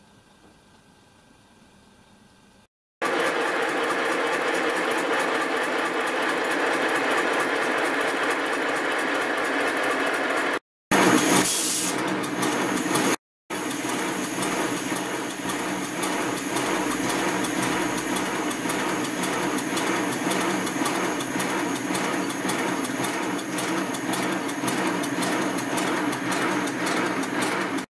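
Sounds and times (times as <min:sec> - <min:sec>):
steam locomotive rhythmic beat: 0:13.5 - 0:27.8.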